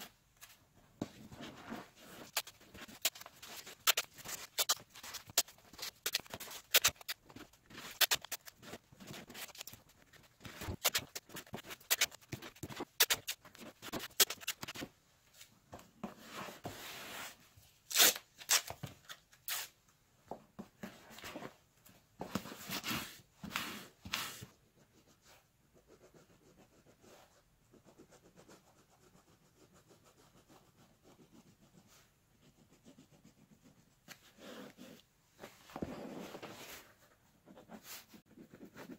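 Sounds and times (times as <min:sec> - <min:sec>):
material rustling and scraping: 0:00.0 - 0:17.6, 0:34.1 - 0:38.2.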